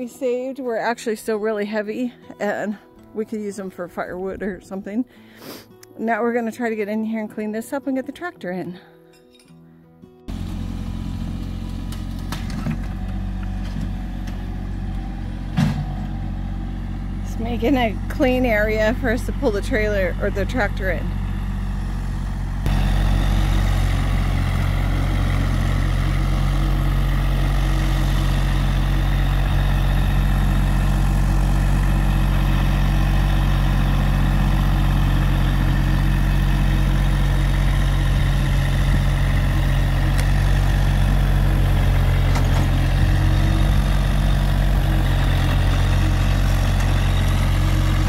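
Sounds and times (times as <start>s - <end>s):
tractor engine running: 10.3s - 48.0s.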